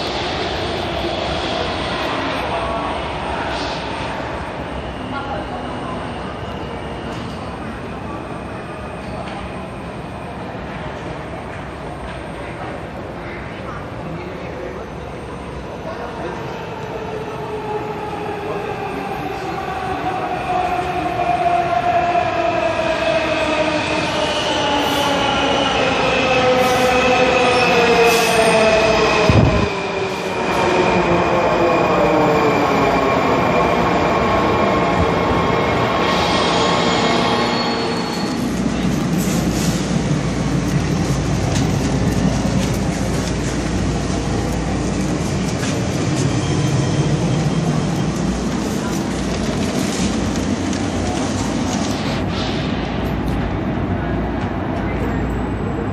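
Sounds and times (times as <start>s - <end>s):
train wheel and rail noise: 0.0s - 55.9s
wheels rumbling on rail: 34.3s - 55.9s.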